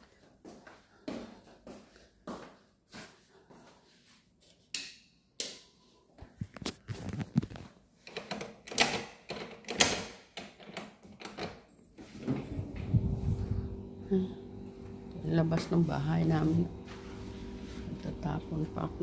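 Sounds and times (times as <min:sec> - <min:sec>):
door lock clicking and rattling: 0:08.0 - 0:11.7.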